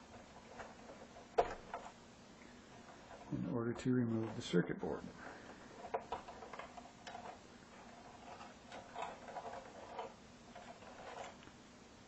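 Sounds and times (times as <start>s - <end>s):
clicks and scrapes of wiring: 0.0s - 2.0s, 5.4s - 11.6s.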